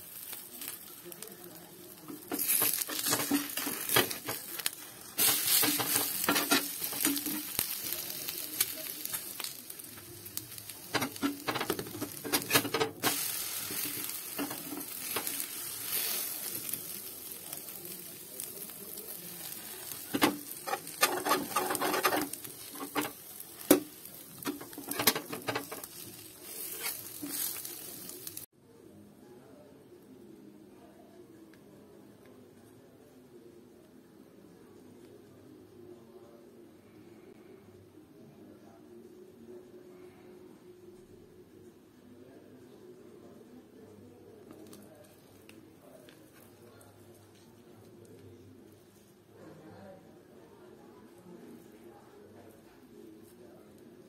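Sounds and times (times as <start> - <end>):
egg sizzling in a pan: 0.0 - 28.5
metal spatula scraping a pan: 2.1 - 4.5, 5.2 - 7.8, 10.9 - 16.2, 20.1 - 23.8, 24.4 - 27.9.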